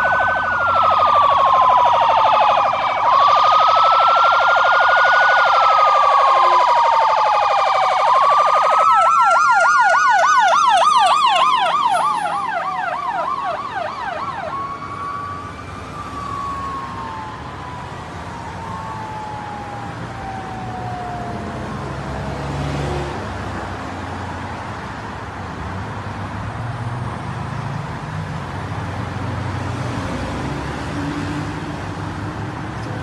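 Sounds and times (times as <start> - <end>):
rapid pulsing siren tone: 0.0 - 21.5
siren fast yelp: 0.0 - 21.9
siren wailing: 0.0 - 23.2.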